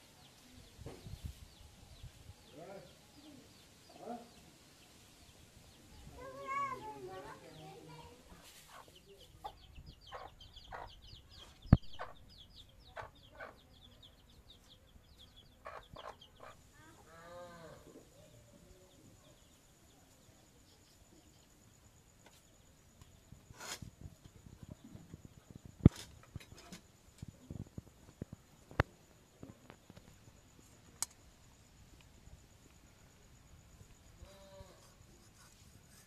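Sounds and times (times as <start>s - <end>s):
chickens clucking: 8.4s - 12.2s, 15.6s - 16.6s
high chirping: 8.8s - 14.0s.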